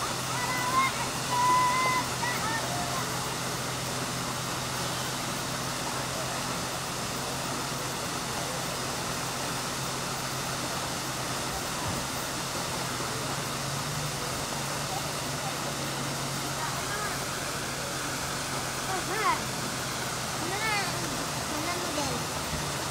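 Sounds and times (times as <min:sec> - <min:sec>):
car engine idling hum: 0:00.0 - 0:22.9
waterfall rushing: 0:00.0 - 0:22.9.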